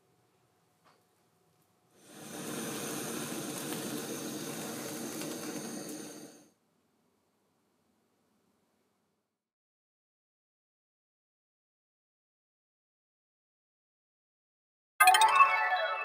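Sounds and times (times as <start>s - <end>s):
meat sizzling on grill: 2.0s - 6.4s.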